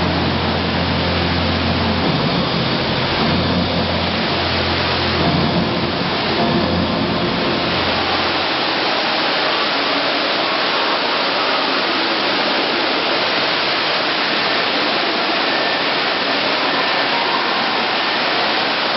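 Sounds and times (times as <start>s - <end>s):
low rumble: 0.0s - 8.8s
fountain water rushing: 0.0s - 18.9s.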